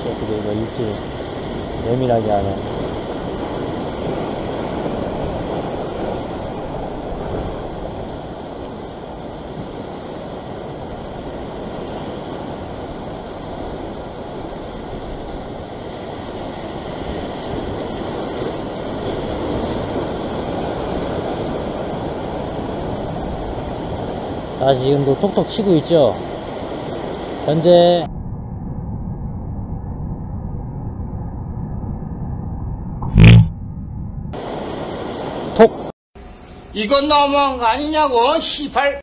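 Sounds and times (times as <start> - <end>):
ocean surf against rocks: 0.0 - 28.0, 34.4 - 35.9.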